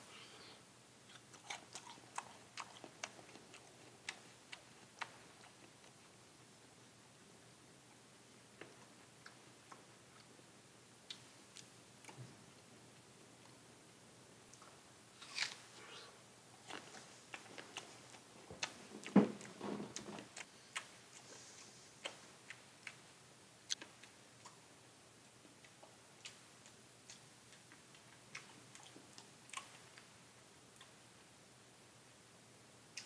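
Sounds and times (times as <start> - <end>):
person chewing a crisp apple: 1.1 - 6.1, 15.2 - 21.2.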